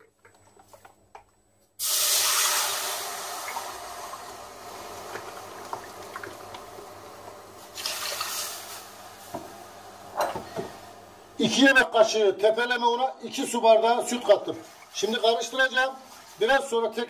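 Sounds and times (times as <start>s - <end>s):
milk pouring into a pot: 1.8s - 9.9s.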